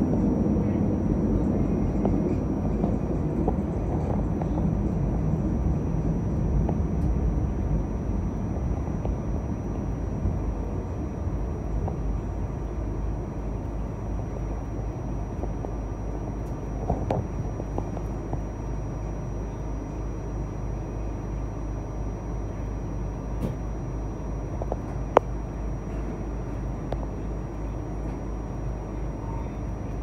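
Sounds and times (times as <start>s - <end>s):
train wheels rumbling: 0.0s - 13.8s.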